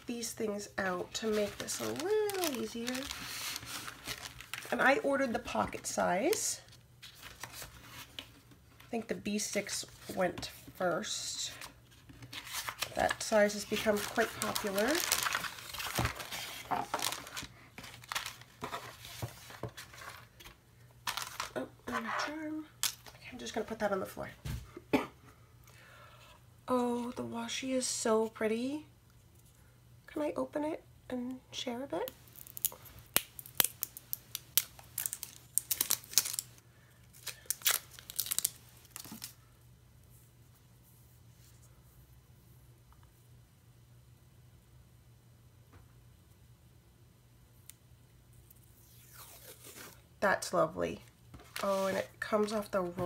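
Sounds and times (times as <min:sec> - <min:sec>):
paper rustling and crinkling: 0:01.1 - 0:04.8, 0:07.0 - 0:08.9, 0:11.6 - 0:21.6, 0:37.1 - 0:39.4, 0:51.4 - 0:53.0.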